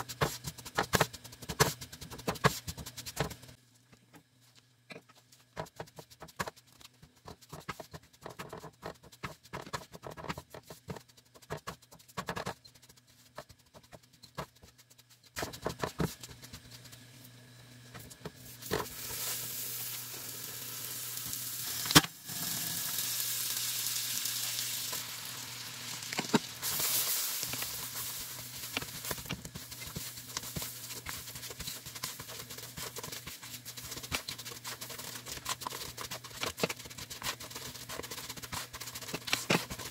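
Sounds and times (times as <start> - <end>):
butter sizzling: 17.9 - 39.9
spatula scraping flour in pan: 26.6 - 39.9.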